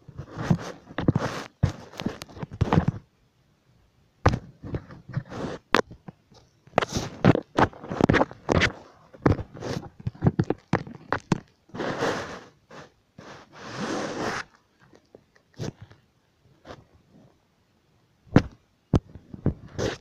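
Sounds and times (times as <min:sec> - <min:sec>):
rustling and scraping of bedding: 0:00.0 - 0:03.0, 0:04.3 - 0:05.7, 0:06.7 - 0:15.9, 0:19.0 - 0:20.0.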